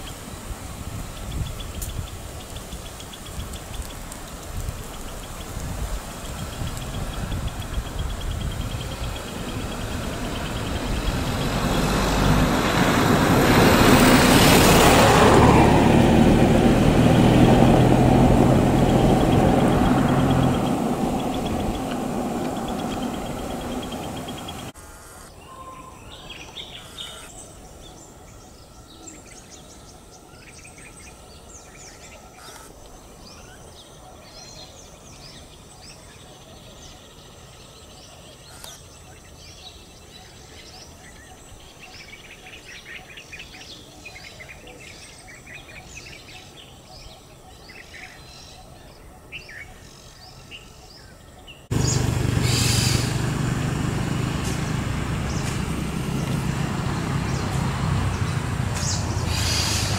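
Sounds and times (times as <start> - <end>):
background hiss: 0.0 - 12.6
small birds chirping: 0.0 - 13.6, 18.3 - 53.2, 53.9 - 59.9.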